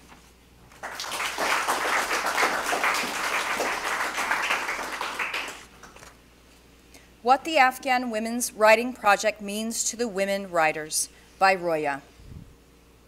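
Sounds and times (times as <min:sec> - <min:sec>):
audience applauding: 0:00.8 - 0:06.1.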